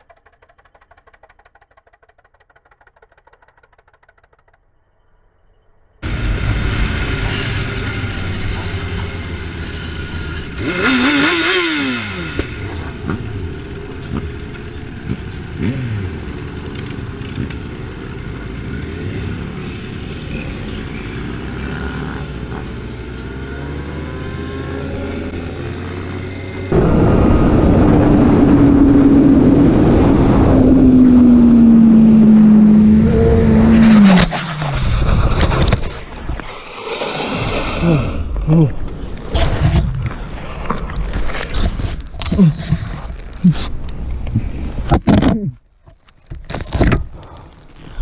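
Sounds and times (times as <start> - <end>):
motorcycle engines riding: 0.0 - 4.6, 6.0 - 35.8, 37.7 - 45.4
steady rush of noise: 6.0 - 10.9, 26.5 - 32.4
engine revving: 6.0 - 35.8.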